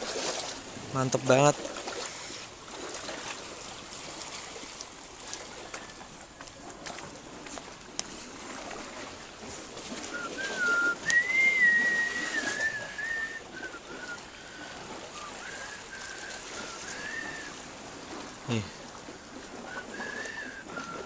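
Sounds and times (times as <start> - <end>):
person whistling a tune: 10.1 - 14.2, 15.2 - 17.6, 19.7 - 21.0.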